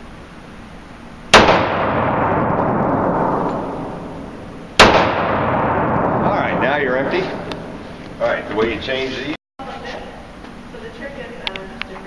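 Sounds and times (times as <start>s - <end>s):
pistol shot with echo: 1.3s - 7.8s.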